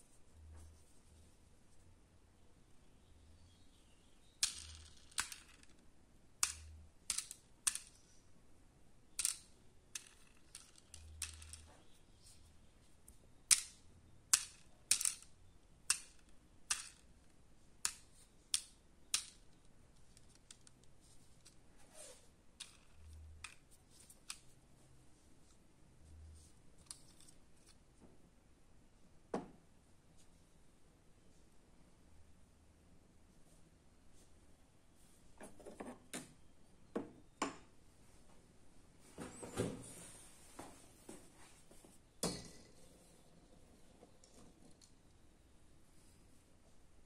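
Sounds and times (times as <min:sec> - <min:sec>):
toy helicopter clicking: 0:04.4 - 0:05.7.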